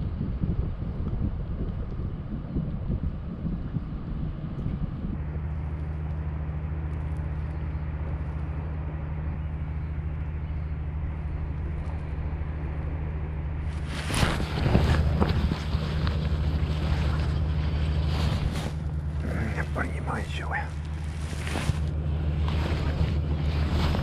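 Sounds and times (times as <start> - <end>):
boat engine humming: 0.0 - 24.0.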